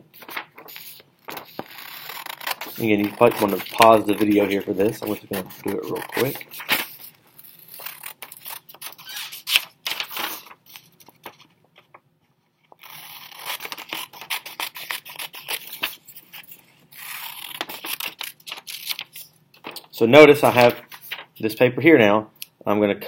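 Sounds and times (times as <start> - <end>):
scissors snipping paper: 0.2 - 7.1, 12.8 - 16.0, 17.0 - 19.1.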